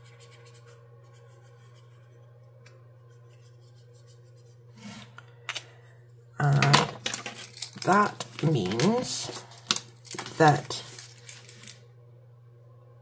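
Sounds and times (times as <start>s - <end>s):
marker scribbling on paper: 0.0s - 2.1s.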